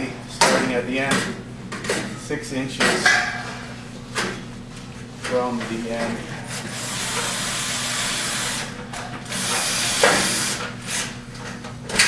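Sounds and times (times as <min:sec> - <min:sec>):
cordless drill driving screw: 0:09.3 - 0:10.6.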